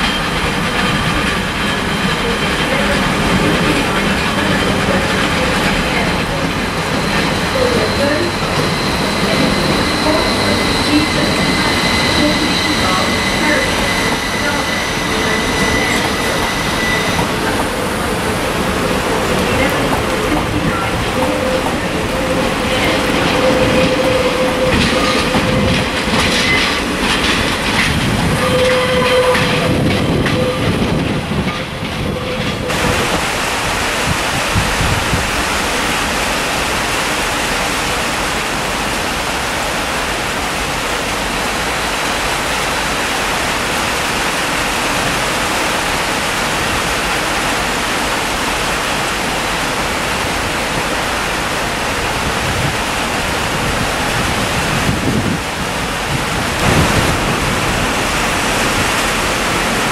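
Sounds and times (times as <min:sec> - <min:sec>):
train wheels clacking over rails: 0:00.0 - 0:59.9
high wheel squeal: 0:06.8 - 0:18.4, 0:19.6 - 0:26.9, 0:28.2 - 0:30.9
steady rushing noise: 0:29.5 - 0:59.9.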